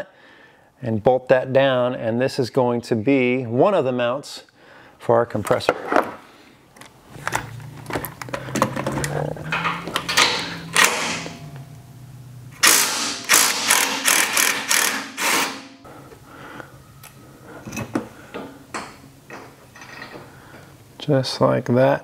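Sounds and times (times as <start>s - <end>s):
cordless ratchet spinning nut: 12.6s - 15.6s.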